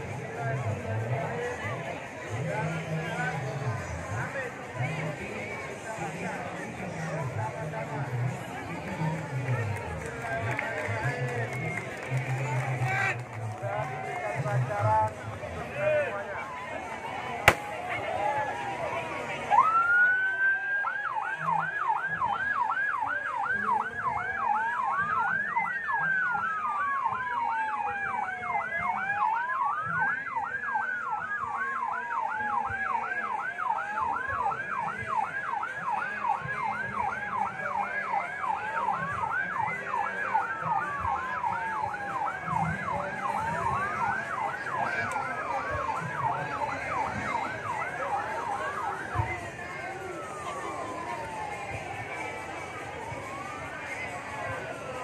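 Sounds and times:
slow wailing siren: 0:19.6 - 0:55.0
fast yelping siren: 0:38.2 - 0:55.0.

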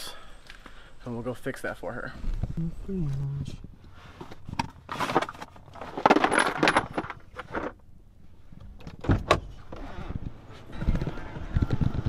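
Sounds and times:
metal tools clattering in a case: 0:04.9 - 0:07.8.

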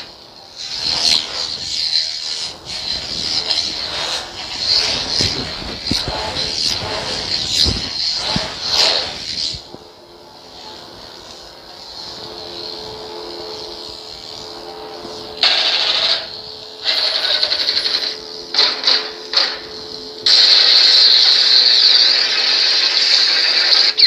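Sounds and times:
lightsaber swing effects: 0:00.0 - 0:19.8
lightsaber hum: 0:00.0 - 0:24.0
loud steady lightsaber effect: 0:00.0 - 0:24.0.

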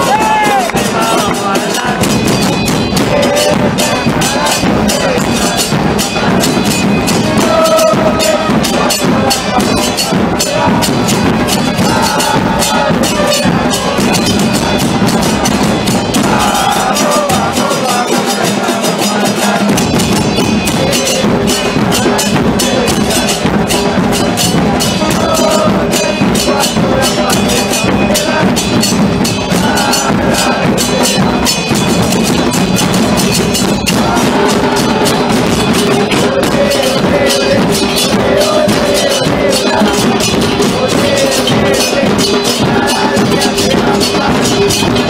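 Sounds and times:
crowd chanting: 0:00.0 - 0:45.0
drums and percussion beat: 0:00.0 - 0:45.0.

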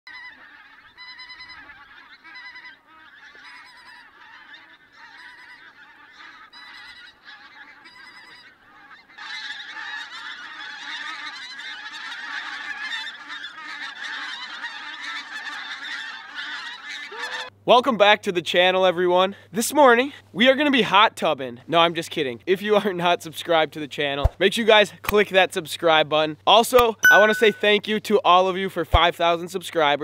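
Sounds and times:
geese honking in flight: 0:00.1 - 0:17.5.

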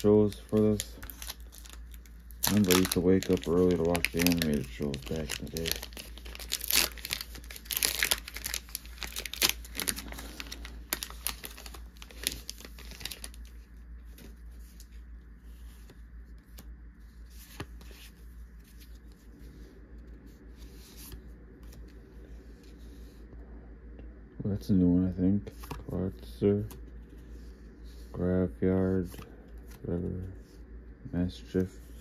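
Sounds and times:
cards clicking and rustling: 0:00.0 - 0:13.5
foil wrapper tearing and crinkling: 0:00.0 - 0:13.5.

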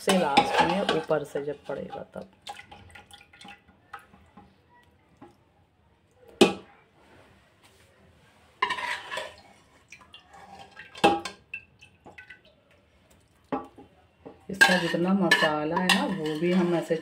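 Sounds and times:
metal utensils knocking on pot: 0:00.0 - 0:02.2, 0:10.9 - 0:12.2, 0:13.6 - 0:17.0.

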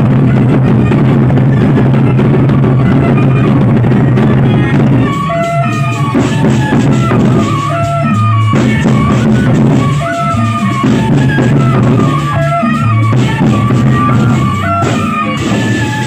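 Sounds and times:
barrel drums beaten: 0:00.0 - 0:16.0
short repeating melodic figure: 0:03.1 - 0:16.0.

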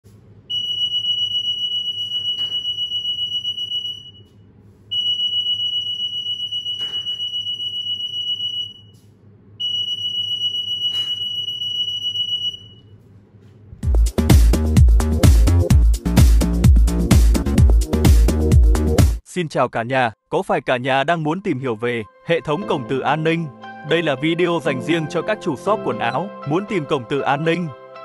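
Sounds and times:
security gate alarm beeping: 0:00.5 - 0:04.3, 0:04.9 - 0:09.0, 0:09.6 - 0:12.9.

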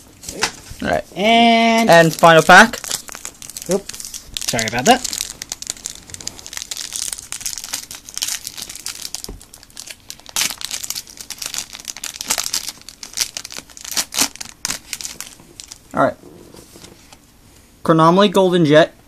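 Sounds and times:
foil wrapper crinkling: 0:00.8 - 0:15.9
foil wrapper tearing: 0:01.6 - 0:15.9.

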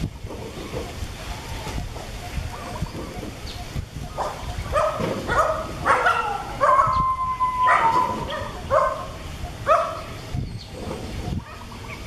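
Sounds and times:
macaque yelping cries: 0:04.1 - 0:10.1.

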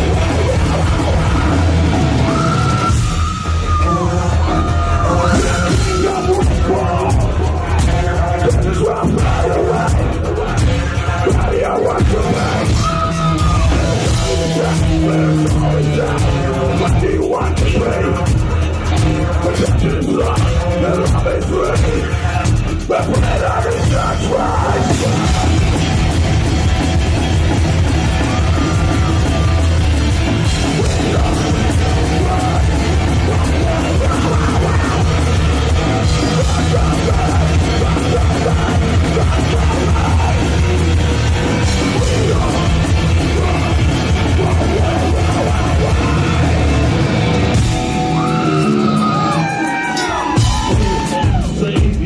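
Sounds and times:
distorted guitar: 0:00.0 - 0:52.0
heavy drums: 0:00.0 - 0:52.0.

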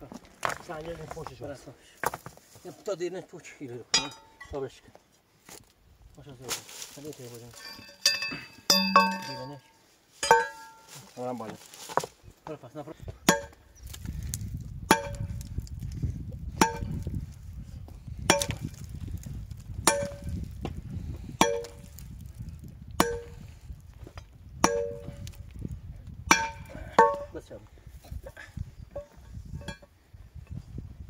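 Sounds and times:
steel bar clanging on rock: 0:03.9 - 0:04.6, 0:07.5 - 0:11.1, 0:13.3 - 0:13.6, 0:14.9 - 0:15.4, 0:16.6 - 0:17.1, 0:18.3 - 0:18.8, 0:19.8 - 0:20.4, 0:21.4 - 0:22.0, 0:23.0 - 0:23.4, 0:24.6 - 0:25.4, 0:26.3 - 0:27.4.

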